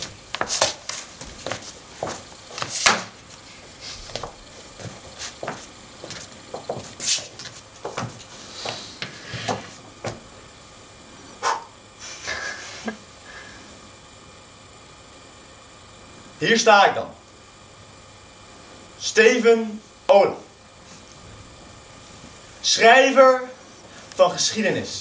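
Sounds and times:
footsteps and scuffs on stage floor: 0:00.0 - 0:10.3
loud sharp breaths: 0:08.4 - 0:09.7, 0:11.4 - 0:12.2, 0:13.2 - 0:13.8.

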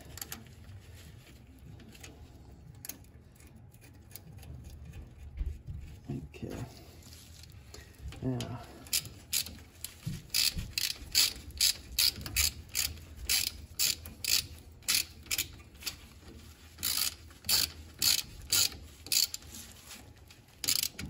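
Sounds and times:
ratchet wrench clicking: 0:08.8 - 0:09.6, 0:10.3 - 0:16.0, 0:16.8 - 0:19.5, 0:20.6 - 0:21.0.

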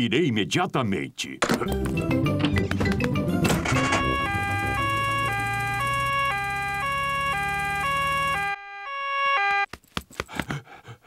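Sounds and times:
two-tone siren: 0:03.6 - 0:09.7.

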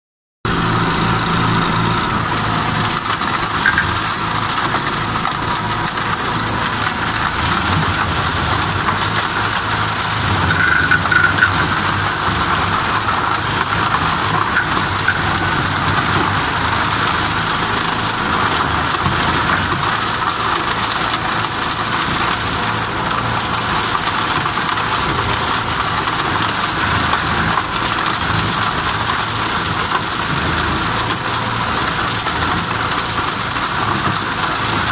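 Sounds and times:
tractor engine running: 0:00.4 - 0:34.9
flail mower chopping brush: 0:00.5 - 0:34.9.

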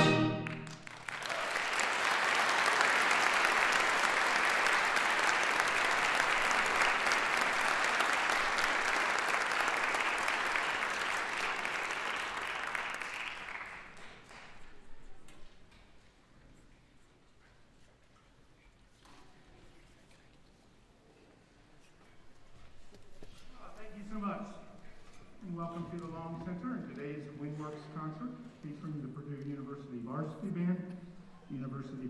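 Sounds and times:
audience applauding: 0:00.0 - 0:14.9.

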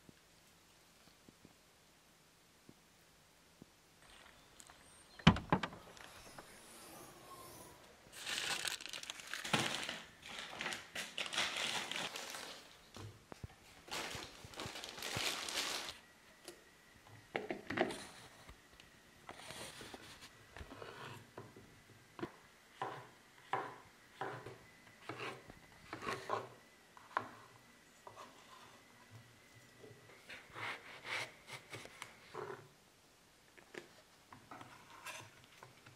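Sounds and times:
crinkling and rustling: 0:04.0 - 0:06.6, 0:08.1 - 0:16.0.

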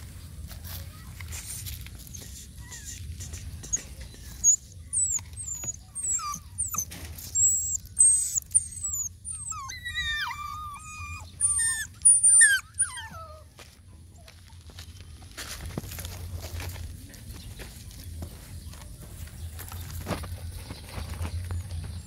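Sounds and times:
puppy whining: 0:02.1 - 0:13.5.

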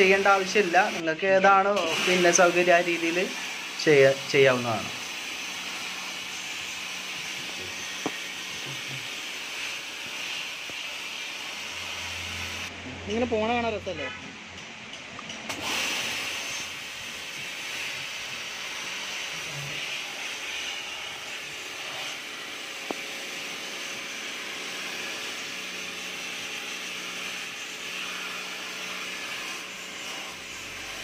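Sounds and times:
water jet hissing on plastic: 0:00.0 - 0:01.0, 0:01.7 - 0:12.7.

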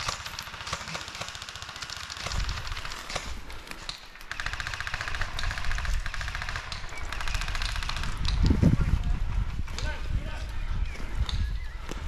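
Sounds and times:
airsoft guns full-auto fire: 0:00.0 - 0:08.4.

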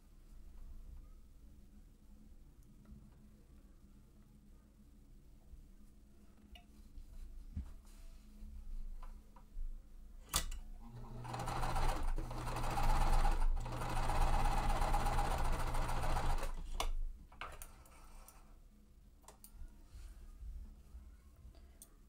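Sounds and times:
sewing machine stitching: 0:10.8 - 0:16.9.

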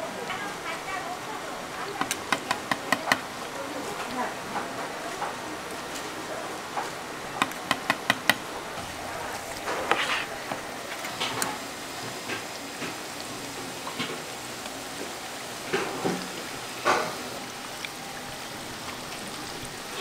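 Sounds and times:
oil sizzling in a fryer: 0:00.0 - 0:20.0.

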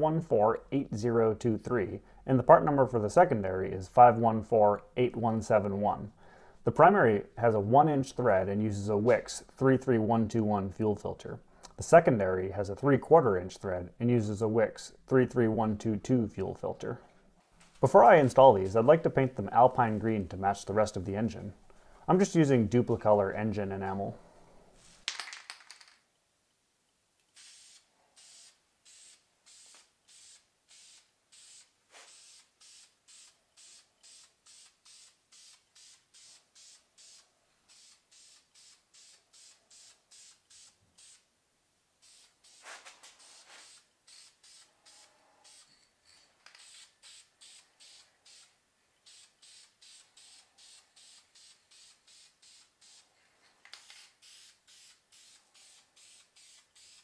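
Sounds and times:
aerosol can spraying: 0:27.4 - 0:41.2, 0:42.0 - 0:45.7, 0:46.6 - 0:53.1, 0:53.8 - 0:57.0.

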